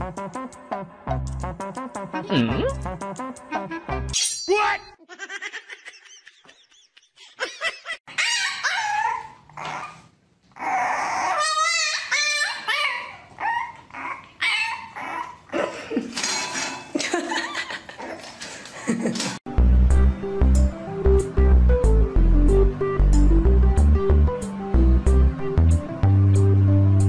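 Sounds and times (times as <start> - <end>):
puppy yapping and whining: 8.1 - 15.5.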